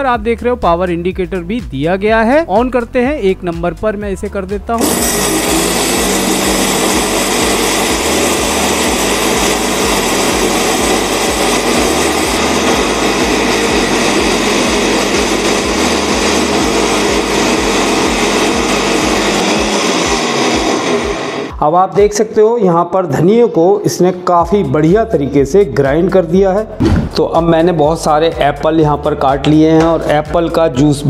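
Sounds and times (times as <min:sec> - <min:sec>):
mixer grinder motor whine: 0:04.8 - 0:21.5.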